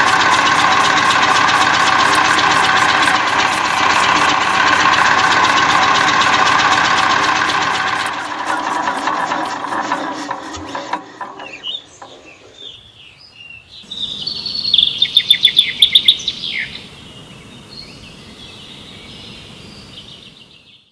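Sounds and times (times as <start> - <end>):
small engine knocking: 0.0 - 12.8
birds chirping: 11.0 - 20.9
bird trill: 11.2 - 17.0.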